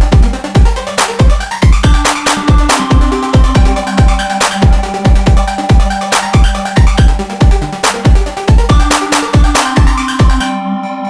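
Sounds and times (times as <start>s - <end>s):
heavy kick drum beat: 0.0s - 10.5s
sustained synth tones: 1.9s - 10.5s.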